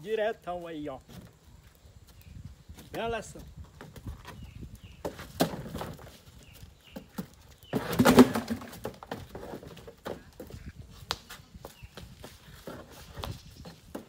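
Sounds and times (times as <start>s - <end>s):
small birds chirping: 0.0s - 8.6s, 10.0s - 14.0s
clatter on wooden stage: 7.8s - 10.0s.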